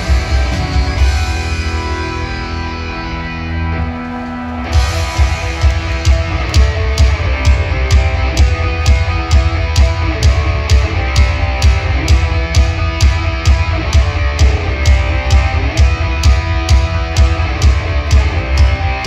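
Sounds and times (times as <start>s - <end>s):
drums steady beat: 0.0s - 2.4s, 4.6s - 19.0s
distorted electric guitars: 0.0s - 19.0s.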